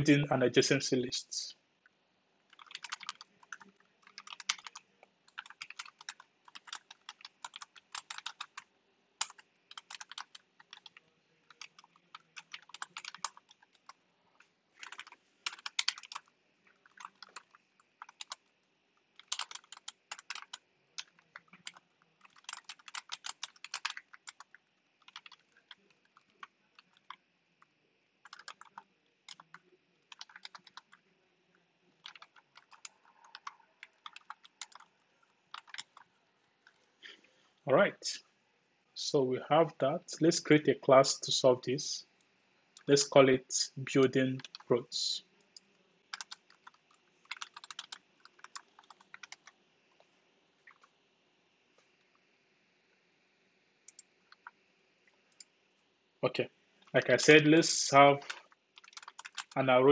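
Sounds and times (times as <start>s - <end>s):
computer keyboard typing: 2.5s - 36.8s, 44.1s - 44.8s, 45.4s - 49.6s, 50.6s - 51.0s, 53.8s - 54.6s, 58.0s - 59.7s.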